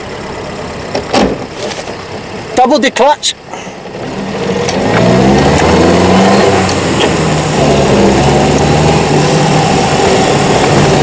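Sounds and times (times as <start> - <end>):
car engine accelerating: 3.4 - 11.0.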